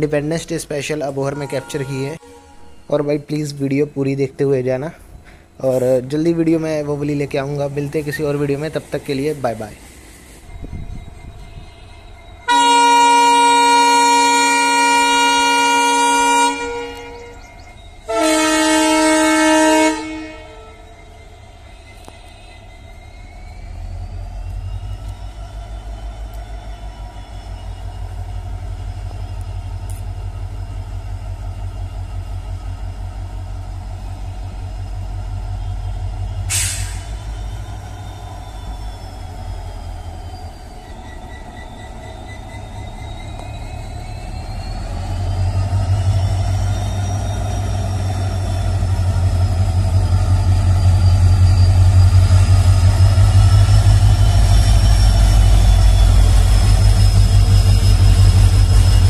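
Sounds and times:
diesel locomotive rumble: 0:00.0 - 0:59.0
metallic wheel and brake squeals: 0:00.0 - 0:59.0
short sharp hiss: 0:36.5 - 0:37.2.

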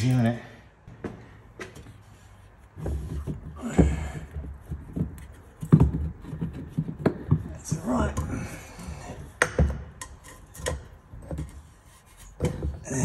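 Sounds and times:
metal clunks and knocks: 0:12.3 - 0:13.0.

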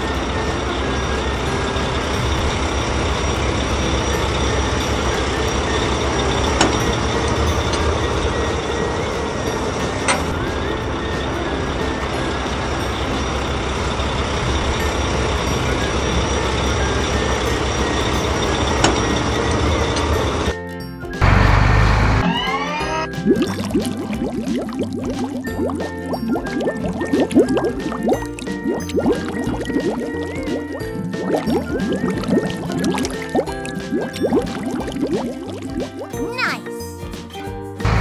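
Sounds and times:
diesel engine running under load: 0:00.0 - 0:20.6, 0:21.2 - 0:23.3.

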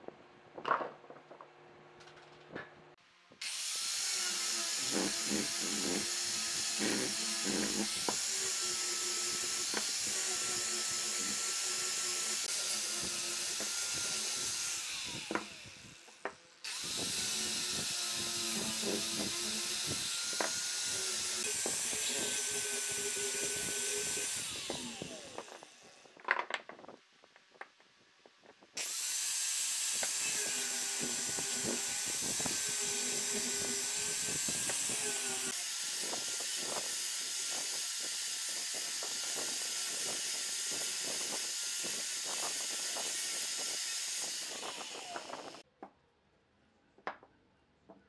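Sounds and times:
sanding disc scraping wood: 0:03.4 - 0:15.9, 0:16.7 - 0:25.6, 0:30.0 - 0:45.6
angle grinder whine: 0:03.4 - 0:26.0, 0:29.8 - 0:45.6.

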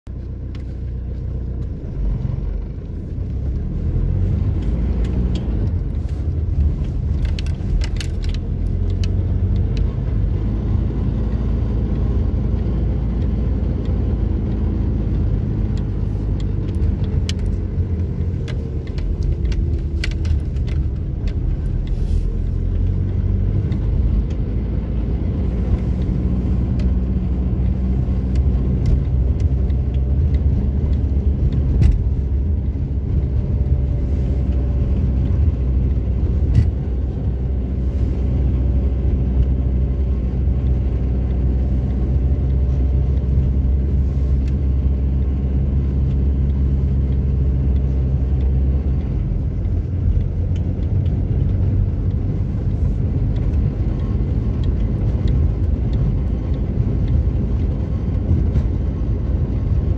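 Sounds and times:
tyres and engine rumble: 0:00.0 - 0:59.9
clicks and rattles: 0:04.6 - 0:09.9.

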